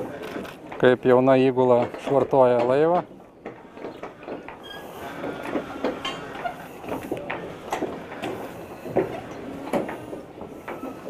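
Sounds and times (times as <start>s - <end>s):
light knocks and clatter: 0.0s - 11.0s.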